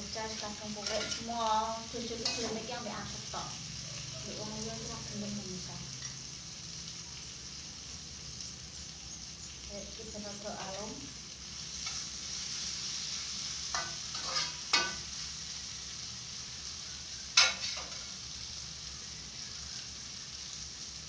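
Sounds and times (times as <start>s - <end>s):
food sizzling in a frying pan: 0.0s - 21.0s
spatula clanking against pan: 0.8s - 1.3s, 13.7s - 15.0s, 17.4s - 18.0s.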